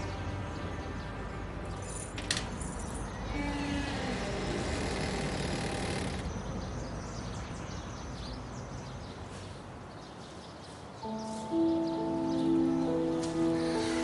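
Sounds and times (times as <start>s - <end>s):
background music sustained notes: 0.0s - 3.4s, 11.0s - 14.0s
steady background noise: 0.0s - 14.0s.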